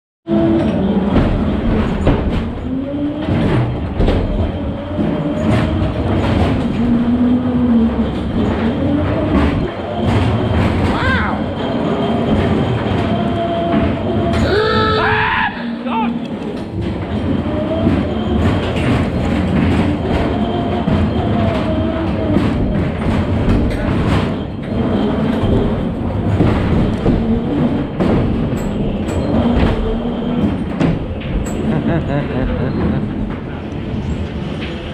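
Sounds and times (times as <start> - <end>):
ride car wheels rumbling: 0.3 - 34.9
knocks and clatters: 0.4 - 14.4, 16.2 - 34.9.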